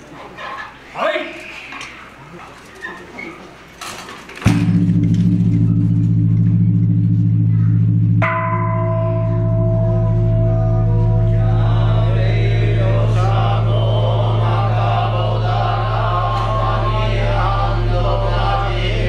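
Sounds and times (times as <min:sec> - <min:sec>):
large temple bell ringing: 0:04.6 - 0:17.2
voices chanting: 0:09.4 - 0:19.0.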